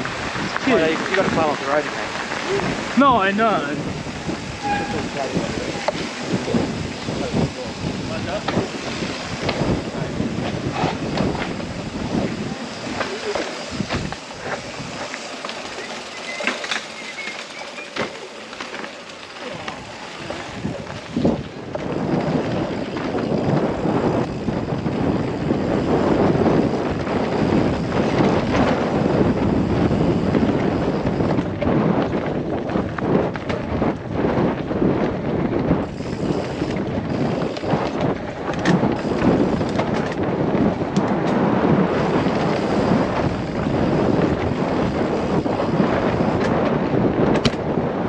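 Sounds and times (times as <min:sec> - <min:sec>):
wind buffeting microphone: 0:00.0 - 0:16.2, 0:19.3 - 0:48.0
bike tyres rumbling over dirt: 0:00.0 - 0:48.0.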